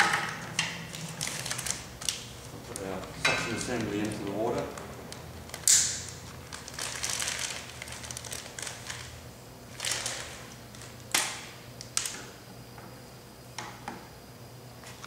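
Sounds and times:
plastic crinkling and rustling: 0.8 - 12.1.

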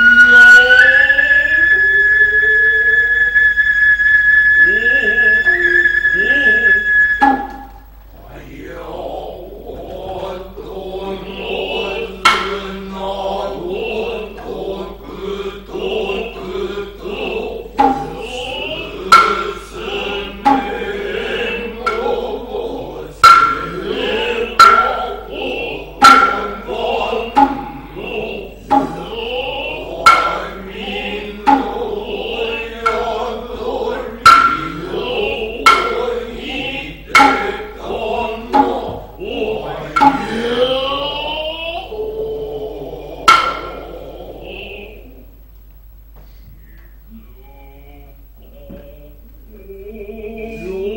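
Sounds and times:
high wavering flute: 0.0 - 8.2, 11.3 - 45.3
men chanting: 4.6 - 45.3, 47.1 - 50.9
sharp drum strikes: 7.2 - 7.9, 11.3 - 13.0, 17.7 - 22.5, 23.2 - 40.6, 43.3 - 44.0.

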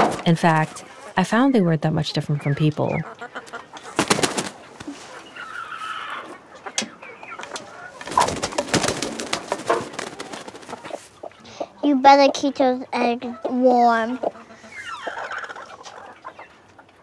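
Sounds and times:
hen clucking: 0.0 - 17.0
feathers and straw rustling: 4.5 - 6.0.

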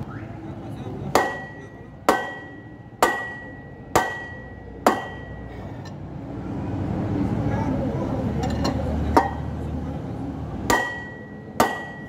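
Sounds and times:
hammer striking steel rod: 1.1 - 5.5, 8.6 - 9.5, 10.7 - 12.0.

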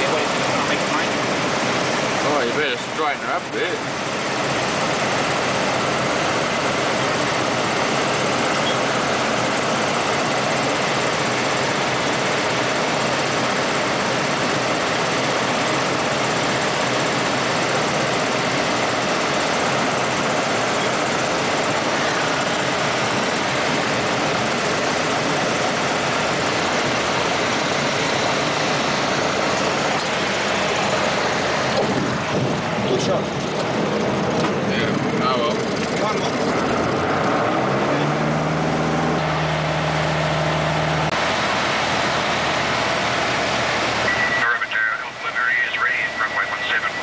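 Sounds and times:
light aircraft engine and propeller: 0.0 - 47.0
wind noise in cabin: 31.7 - 34.5.

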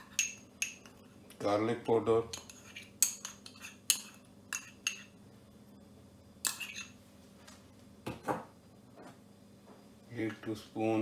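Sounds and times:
spoon clinking against bowl: 0.0 - 1.0, 2.3 - 5.2, 6.4 - 7.0.

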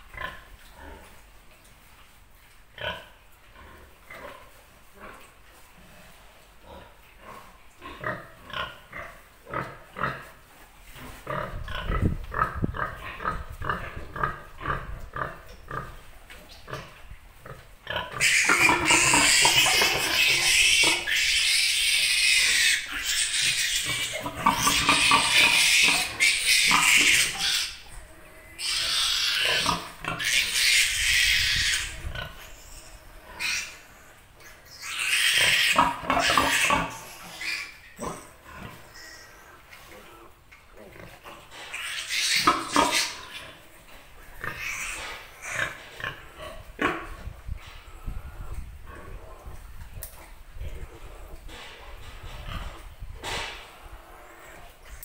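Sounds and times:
pig grunting: 16.7 - 55.0
piglet squealing: 18.2 - 38.2, 41.7 - 43.6, 44.4 - 45.8.

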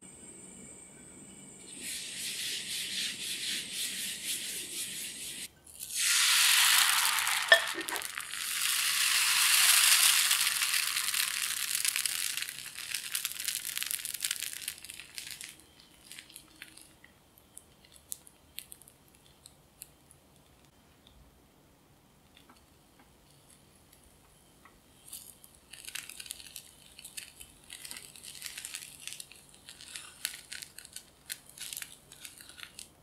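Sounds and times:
batter sizzling in a pan: 1.7 - 16.8
paper towel wiping oil in pan: 1.8 - 6.1.

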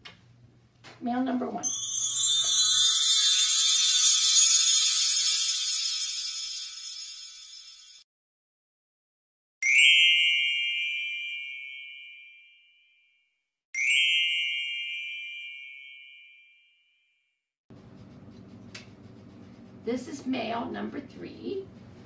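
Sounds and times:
bell-like ding chime: 1.6 - 8.0, 9.6 - 13.1, 13.8 - 17.0.

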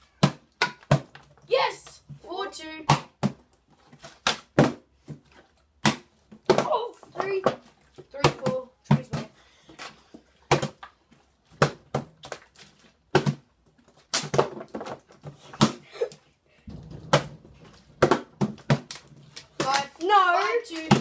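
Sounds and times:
plastic bottles hitting countertop: 14.2 - 15.8, 16.7 - 21.0.

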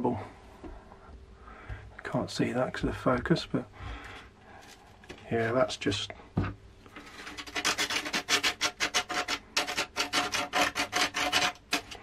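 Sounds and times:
metal tool scraping rusted steel: 7.0 - 12.0.

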